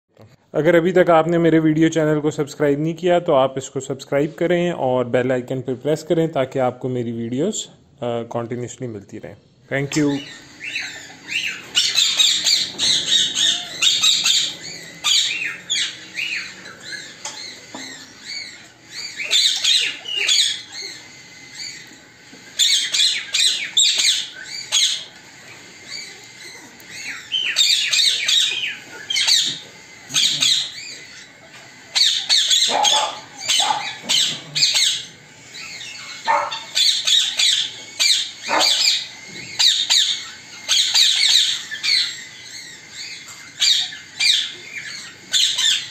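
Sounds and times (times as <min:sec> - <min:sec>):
parrots squawking and chirping: 0:09.4 - 0:45.9.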